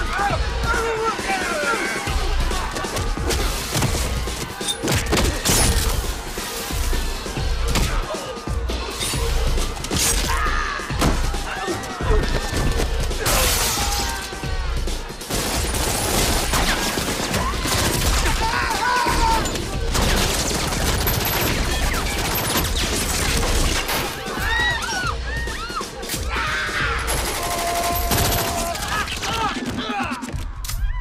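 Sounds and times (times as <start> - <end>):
people screaming: 7.8 - 14.8, 17.2 - 19.9, 23.8 - 31.0
gunshots: 15.2 - 24.3.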